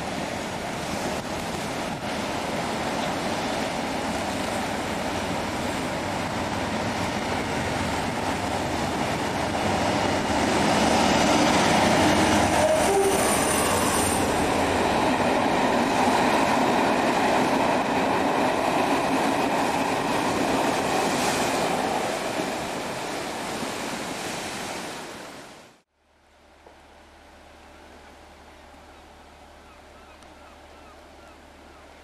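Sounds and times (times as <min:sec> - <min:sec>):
train coaches running past: 0:00.0 - 0:24.5.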